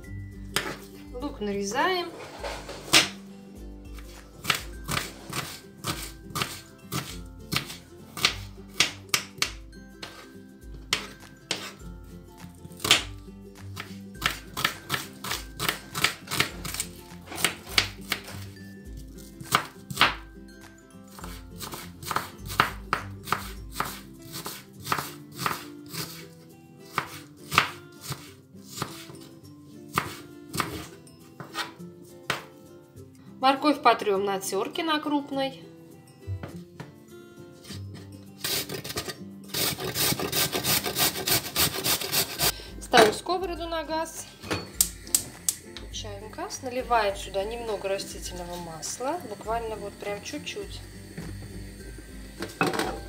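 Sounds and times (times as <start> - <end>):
background music: 0.0 - 53.0
knife chopping on wooden board: 4.0 - 10.2, 13.8 - 16.8, 19.4 - 20.2, 21.2 - 26.2, 26.9 - 29.1, 29.9 - 31.7.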